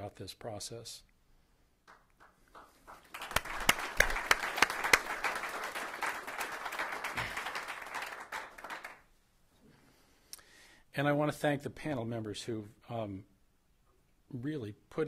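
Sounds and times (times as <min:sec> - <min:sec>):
audience applauding: 0:01.9 - 0:09.1.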